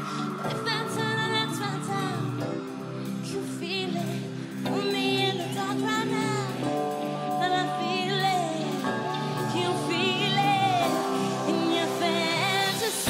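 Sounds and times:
woman singing: 0.0s - 13.0s.

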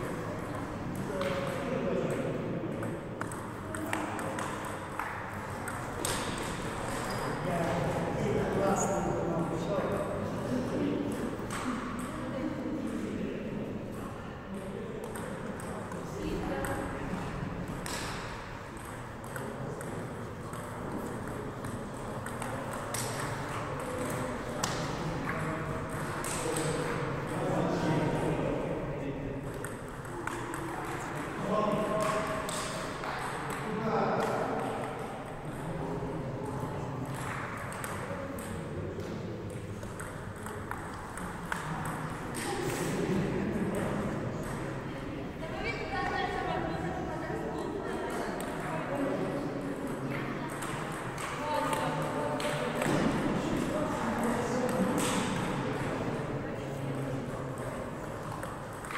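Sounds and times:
ping pong ball clicking: 0.0s - 7.2s, 15.0s - 16.0s, 17.7s - 27.4s, 29.4s - 35.6s, 37.0s - 38.7s, 39.5s - 42.6s, 49.8s - 53.0s, 57.6s - 58.9s.

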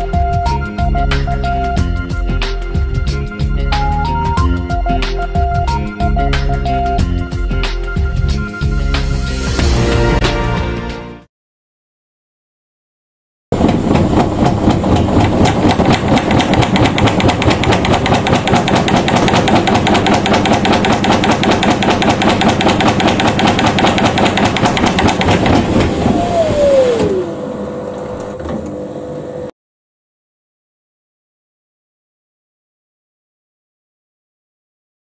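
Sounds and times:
rapid rattling knocks: 13.6s - 26.0s
washing machine spinning: 13.6s - 29.5s.

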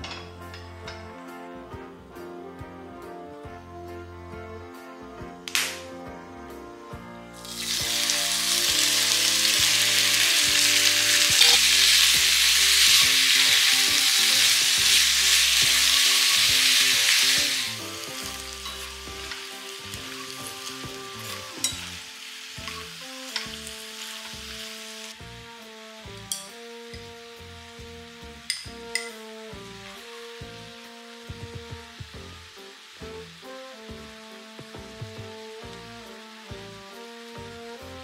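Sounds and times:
soft background music: 0.0s - 38.0s
squid sizzling in oil: 7.4s - 38.0s
chopsticks clinking: 11.3s - 12.0s, 18.3s - 19.4s, 21.6s - 22.0s, 28.5s - 29.2s.

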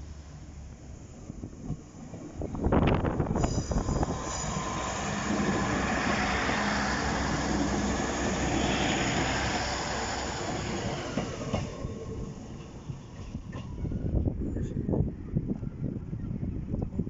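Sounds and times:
train wheels rolling on rails: 0.0s - 14.7s
diesel train engine running: 2.7s - 13.0s.

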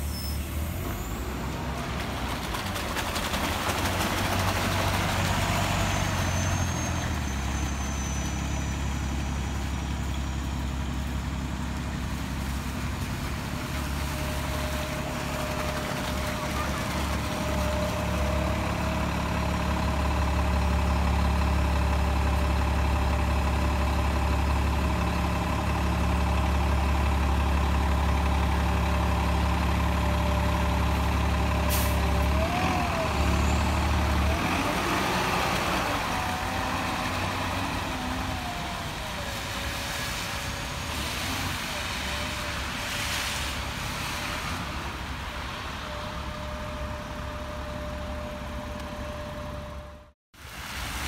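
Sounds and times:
bus diesel engine humming: 0.0s - 50.8s
engine whine: 30.0s - 50.2s.

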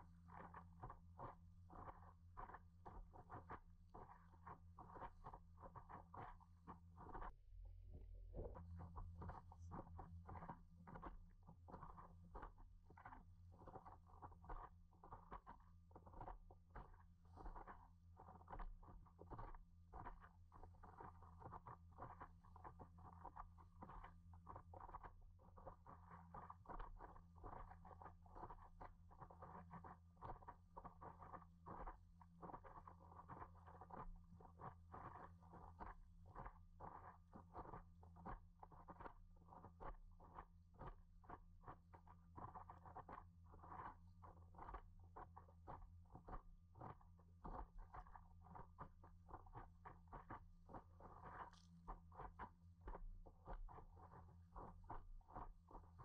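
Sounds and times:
steady low hum: 3.2s - 14.6s.

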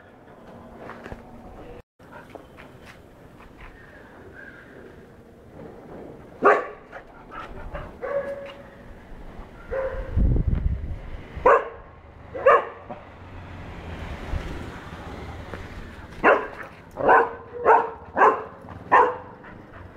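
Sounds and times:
puppy barking: 6.4s - 7.0s, 7.8s - 8.6s, 9.7s - 10.1s, 11.4s - 13.0s, 16.2s - 19.5s.

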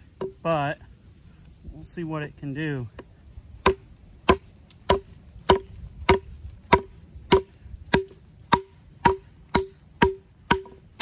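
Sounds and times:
knife chopping into branch: 3.0s - 10.8s.

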